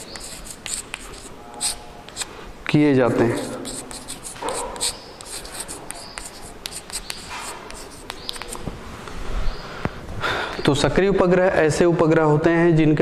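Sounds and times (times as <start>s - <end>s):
chalk scratching on blackboard: 0.0s - 2.3s, 3.0s - 8.7s
chalk squeaks: 0.0s - 2.3s, 3.0s - 8.7s
chalk tapping clicks: 0.0s - 2.3s, 3.4s - 8.7s.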